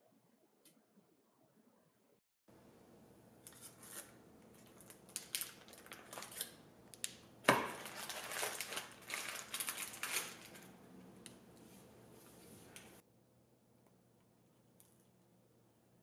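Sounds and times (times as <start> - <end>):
parchment paper crinkling: 3.4 - 6.6, 7.6 - 10.7.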